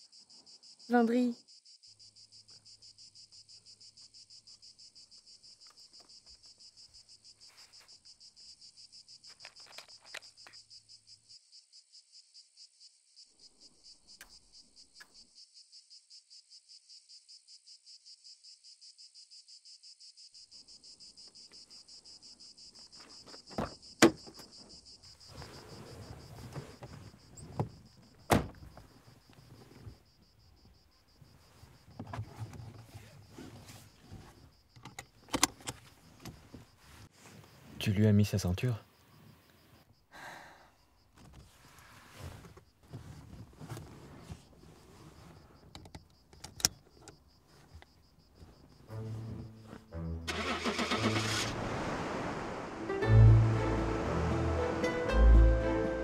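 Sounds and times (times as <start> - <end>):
crickets trilling: 0.0 - 53.0
rustling movement: 35.1 - 37.8, 41.1 - 45.7.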